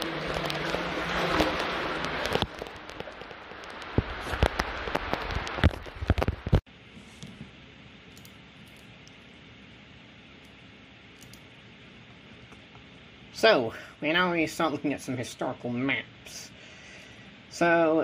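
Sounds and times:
water pouring and splashing: 0:00.0 - 0:06.6.

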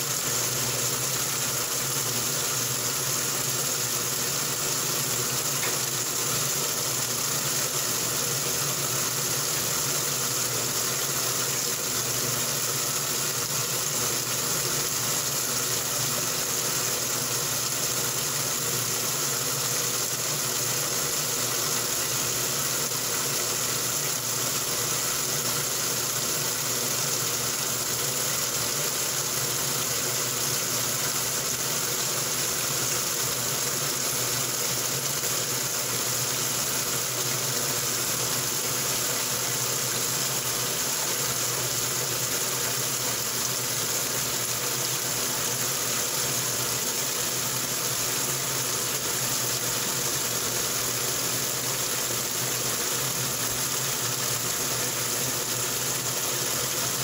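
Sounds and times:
washing machine hum: 0:00.0 - 0:57.0.

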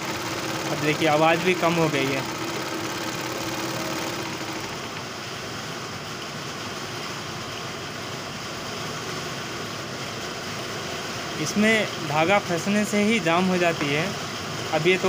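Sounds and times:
overlock sewing machine running: 0:00.0 - 0:05.4.

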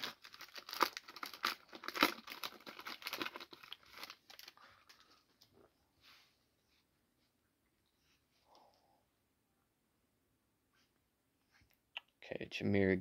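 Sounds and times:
foil wrapper tearing and crinkling: 0:00.0 - 0:04.6.

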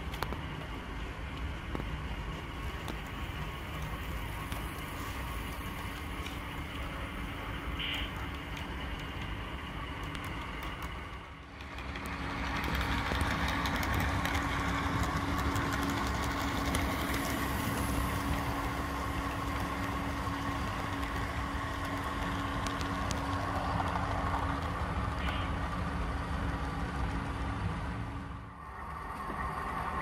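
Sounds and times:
faint track clicks: 0:00.0 - 0:05.1, 0:07.8 - 0:17.3
model locomotive hum: 0:00.0 - 0:30.0.

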